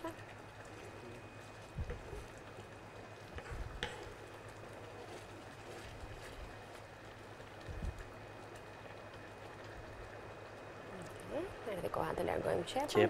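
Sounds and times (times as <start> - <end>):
steady low hum: 0.0 - 13.0
wooden spoon stirring risotto: 0.2 - 10.3.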